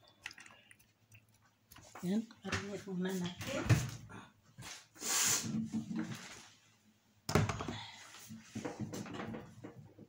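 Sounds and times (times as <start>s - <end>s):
brief hiss: 5.0s - 5.5s.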